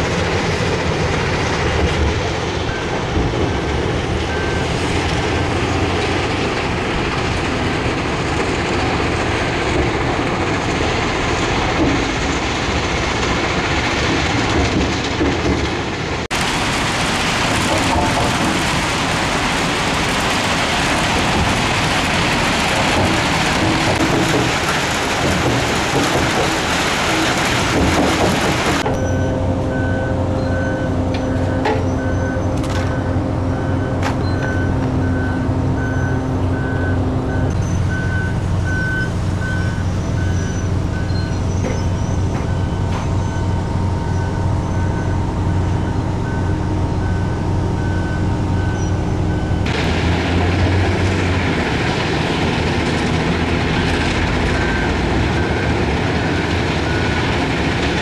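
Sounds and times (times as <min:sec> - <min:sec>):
crushing plant machinery rumble: 0:00.0 - 0:58.0
reversing alarm beeping: 0:02.6 - 0:04.9, 0:28.8 - 0:49.7, 0:53.6 - 0:57.3.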